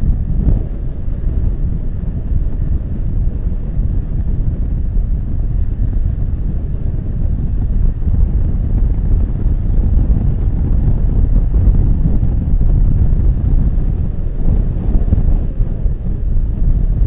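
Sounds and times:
wind buffeting a microphone: 0.0 - 17.0.

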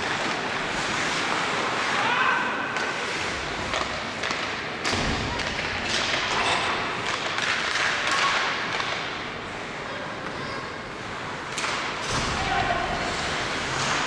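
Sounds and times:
arena noise: 0.0 - 14.0
puck and sticks hitting boards: 3.6 - 9.2, 11.5 - 12.6.

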